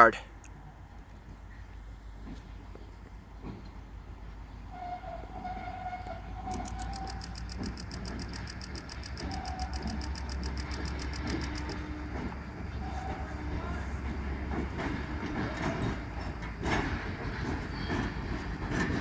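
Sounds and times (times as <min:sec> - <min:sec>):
diesel locomotive engine rumble: 0:00.0 - 0:19.0
fast high-pitched ringing: 0:06.5 - 0:11.8.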